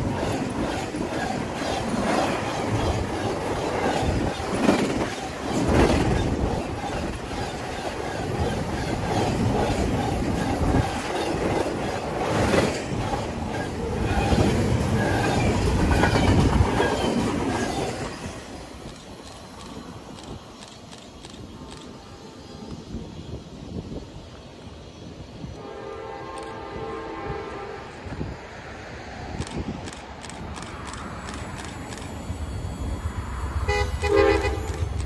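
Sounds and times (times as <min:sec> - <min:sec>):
train wheels clattering over rail joints: 0:00.0 - 0:22.0, 0:29.3 - 0:33.3.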